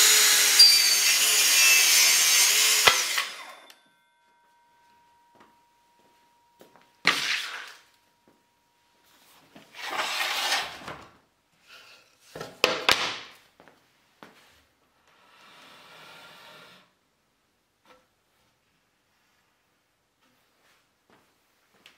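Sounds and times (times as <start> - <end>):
sliding scrape: 9.1 - 11.0, 15.2 - 16.9.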